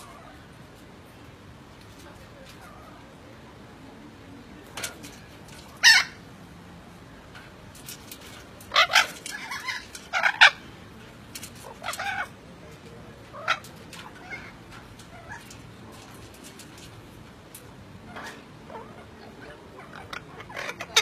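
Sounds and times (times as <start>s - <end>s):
parrots calling and chattering: 0.0s - 1.2s, 4.6s - 6.6s, 7.3s - 21.0s.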